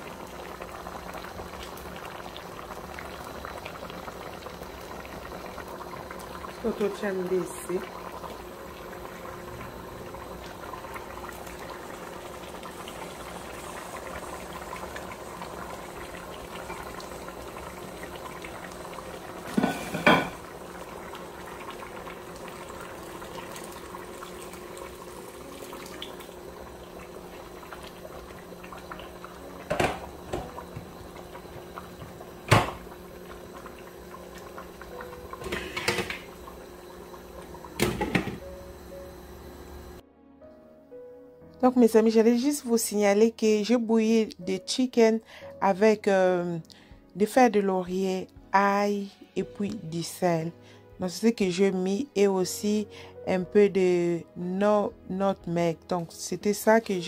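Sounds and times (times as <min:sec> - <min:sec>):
pot boiling on stove: 0:00.0 - 0:40.0
kitchenware knocking against pot: 0:19.6 - 0:20.4.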